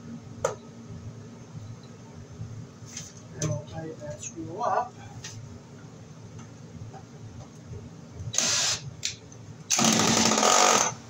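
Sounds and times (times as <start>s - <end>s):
cordless drill running: 8.4s - 8.8s, 9.7s - 11.0s.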